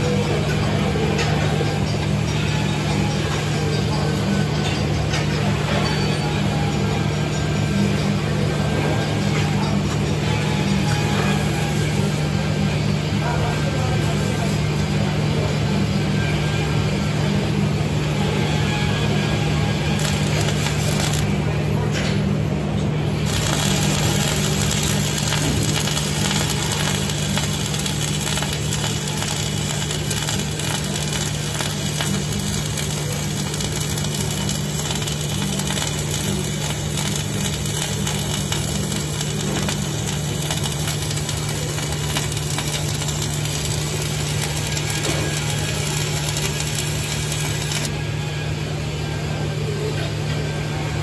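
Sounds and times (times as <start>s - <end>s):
welding arc sizzling crackle: 0.0s - 15.0s, 18.1s - 48.0s
steady low hum: 19.6s - 49.0s.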